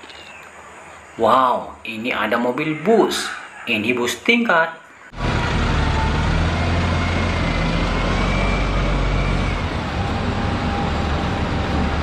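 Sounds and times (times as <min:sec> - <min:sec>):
street traffic noise: 0:05.0 - 0:12.0
bus diesel engine running: 0:05.1 - 0:12.0.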